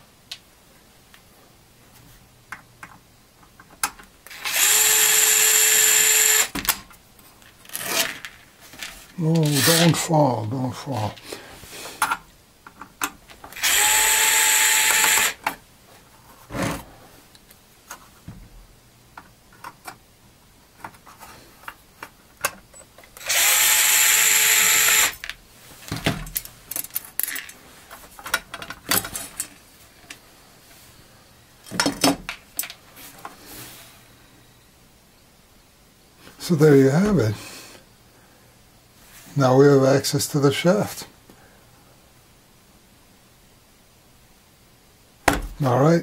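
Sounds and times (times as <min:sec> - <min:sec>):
electric screwdriver running: 0:04.3 - 0:06.6, 0:13.6 - 0:15.4, 0:23.2 - 0:25.2.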